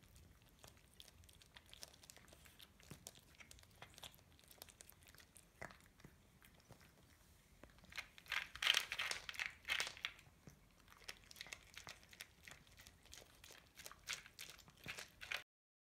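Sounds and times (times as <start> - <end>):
cat crunching food: 0.0 - 15.4
plastic plate crinkling: 7.6 - 10.3, 10.9 - 15.4.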